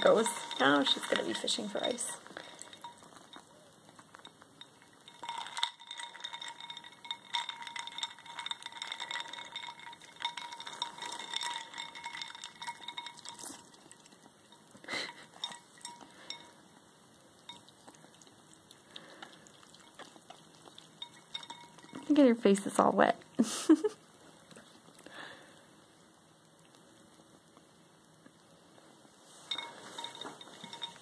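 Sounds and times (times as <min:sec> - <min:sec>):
ice cubes clinking in a bowl: 0:00.0 - 0:16.6, 0:17.5 - 0:23.0, 0:29.4 - 0:31.0.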